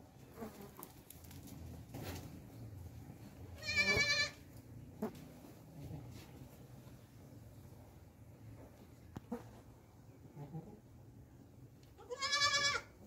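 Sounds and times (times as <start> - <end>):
goat bleating: 3.6 - 4.4, 12.0 - 13.0.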